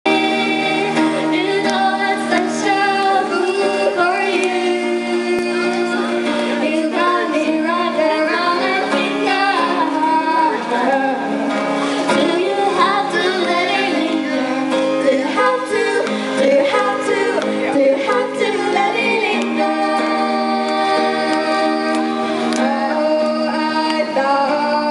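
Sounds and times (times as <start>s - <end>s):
acoustic guitar: 0.0s - 24.9s
woman singing: 0.1s - 24.9s.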